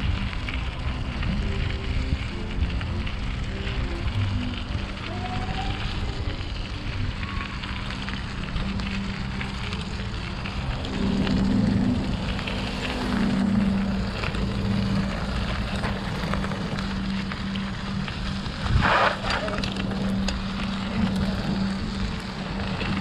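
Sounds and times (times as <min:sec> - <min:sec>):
bicycle road noise: 0:00.0 - 0:23.0
wind noise on camera: 0:00.0 - 0:23.0
steady low hum: 0:06.2 - 0:23.0.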